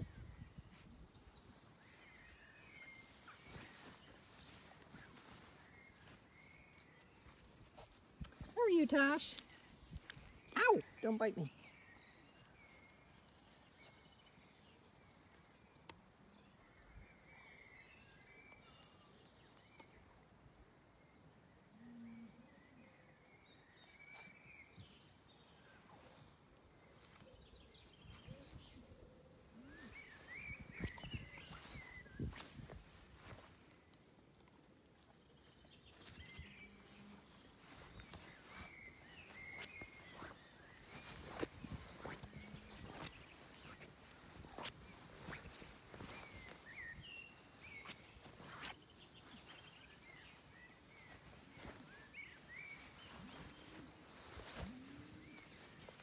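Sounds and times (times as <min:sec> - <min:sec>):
faint bird chirps: 0:21.2 - 0:33.5, 0:35.4 - 0:56.0.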